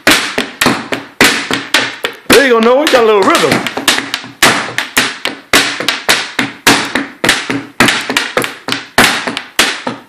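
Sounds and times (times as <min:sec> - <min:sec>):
drum beaten with sticks: 0:00.0 - 0:10.0.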